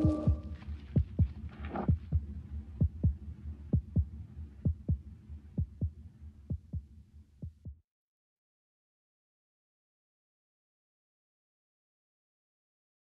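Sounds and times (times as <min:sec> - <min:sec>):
steady low hum: 0:00.0 - 0:07.7
heartbeat thumps: 0:00.0 - 0:07.8.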